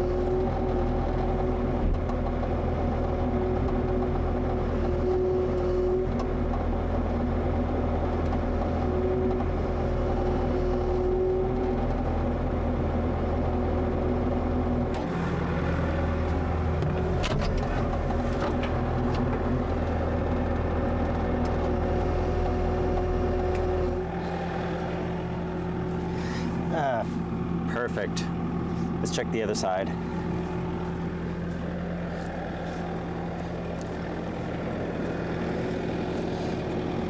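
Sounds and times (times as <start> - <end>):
hydraulic whine: 0.0 - 6.5, 14.9 - 37.0
diesel engine running: 0.0 - 37.0.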